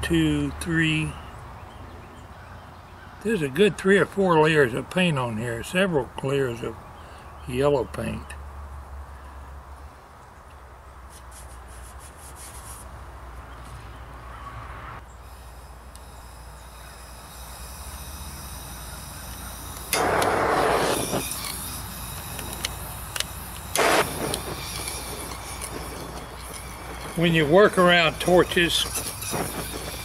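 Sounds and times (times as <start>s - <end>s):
gas hissing from torch nozzle: 15.3s - 30.0s
torch flame burning: 15.3s - 30.0s
flame lighting whoosh: 19.8s - 30.0s.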